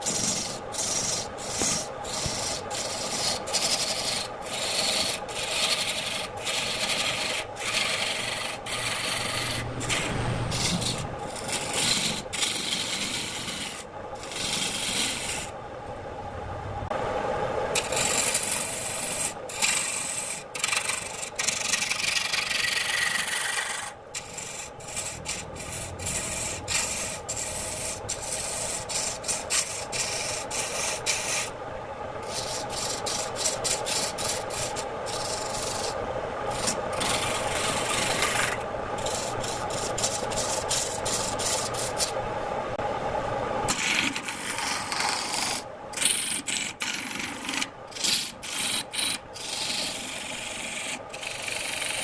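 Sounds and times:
lathe tool scraping wood: 0:00.0 - 0:15.5, 0:17.8 - 0:31.5, 0:32.2 - 0:42.2, 0:43.7 - 0:52.0
lathe motor hum: 0:00.0 - 0:15.6, 0:16.8 - 0:52.0.

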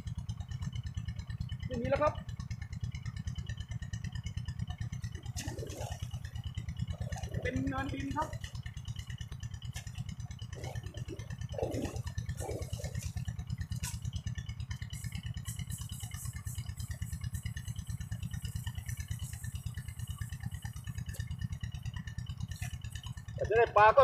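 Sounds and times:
small engine chugging: 0:00.0 - 0:24.0
water splashing: 0:10.6 - 0:14.1.

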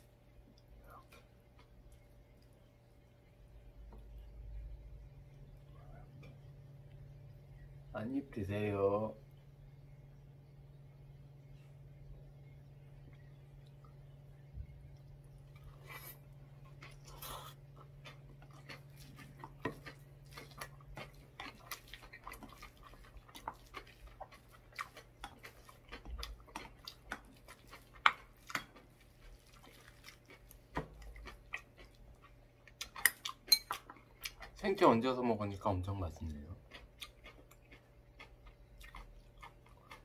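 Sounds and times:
close chewing with mouth clicks: 0:14.9 - 0:34.6, 0:36.1 - 0:40.0.

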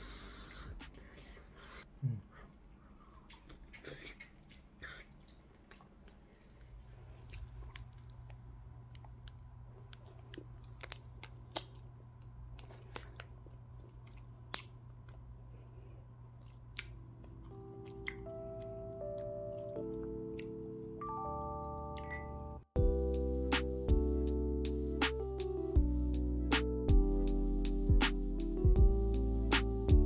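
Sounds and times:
low steady hum: 0:00.0 - 0:30.0
chewing: 0:02.3 - 0:15.3, 0:16.2 - 0:20.6.

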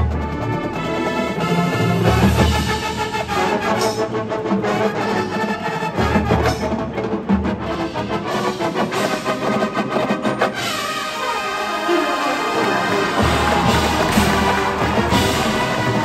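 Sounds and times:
drum and bugle corps: 0:00.0 - 0:16.0
held brass tones: 0:08.3 - 0:16.0
marching drum strokes: 0:12.8 - 0:16.0.

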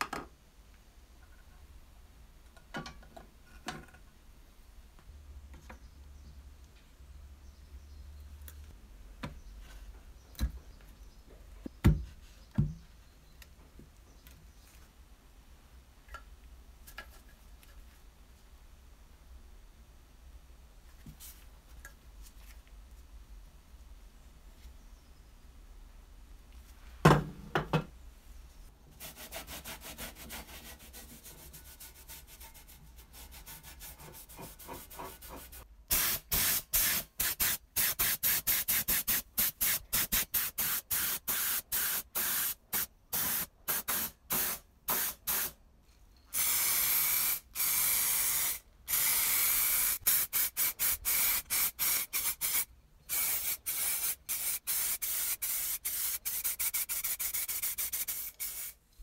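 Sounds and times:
spray paint hissing bursts: 0:35.3 - 0:45.6, 0:46.3 - 0:58.8.

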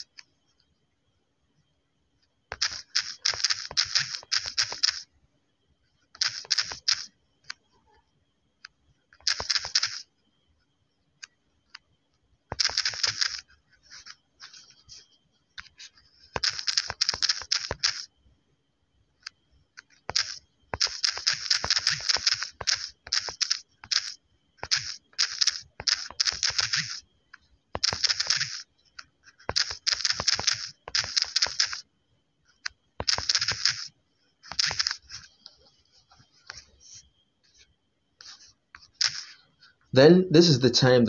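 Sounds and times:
fingers tapping phone keyboard: 0:02.5 - 0:05.0, 0:06.2 - 0:07.6, 0:08.6 - 0:10.1, 0:12.5 - 0:15.0, 0:15.6 - 0:18.1, 0:19.2 - 0:27.0, 0:27.7 - 0:31.8, 0:32.6 - 0:37.0, 0:38.2 - 0:39.4.

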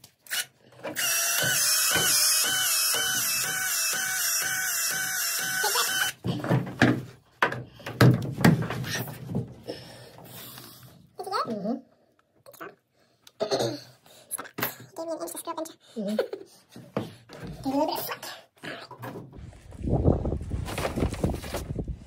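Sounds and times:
power tool motor whine: 0:01.0 - 0:06.2.

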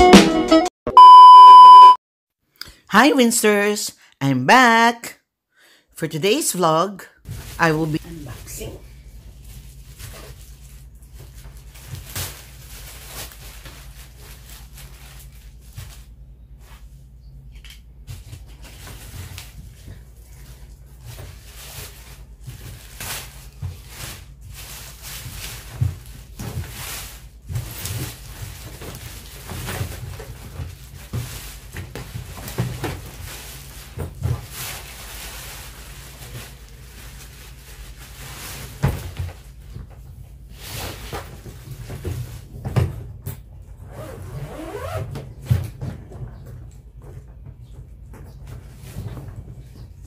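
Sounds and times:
plastic wrapping crinkling: 0:09.3 - 0:16.2, 0:20.2 - 0:38.8.

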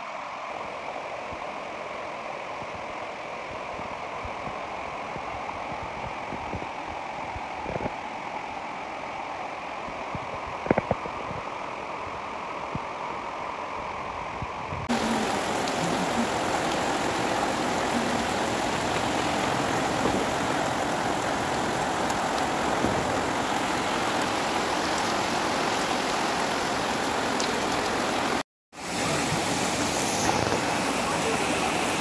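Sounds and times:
heavy rain falling: 0:14.9 - 0:32.0
running water: 0:14.9 - 0:32.0.

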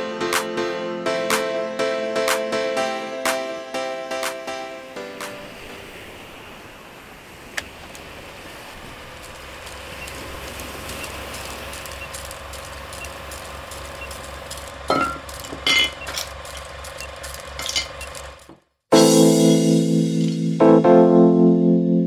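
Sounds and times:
wood and shells clinking in bowl: 0:14.8 - 0:18.4.

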